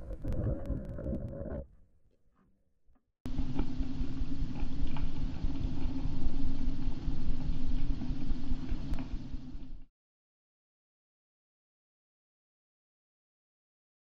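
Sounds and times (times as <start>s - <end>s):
low rumbling underwater noise: 0.0s - 1.9s.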